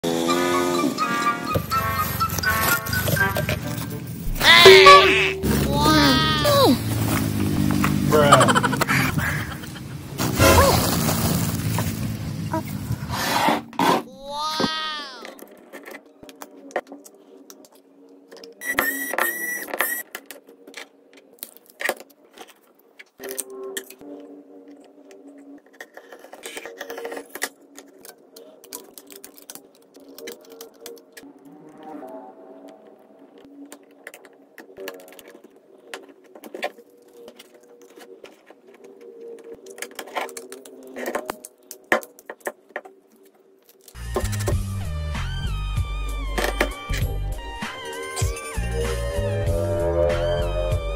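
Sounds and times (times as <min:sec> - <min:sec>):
squeaky scraping: 0:00.1 - 0:07.7.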